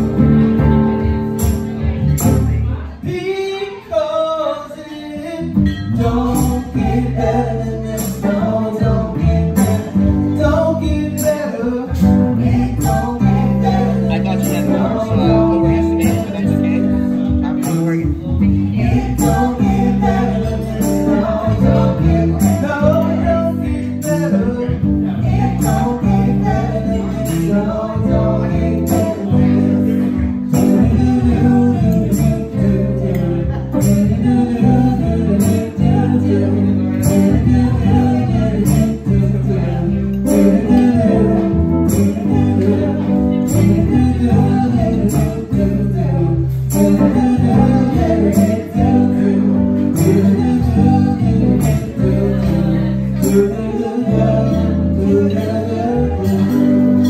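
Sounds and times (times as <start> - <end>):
drum kit with cymbals: 0.0 - 2.6
electric guitar: 0.0 - 3.0, 5.3 - 57.0
electric bass: 0.0 - 3.1, 5.2 - 57.0.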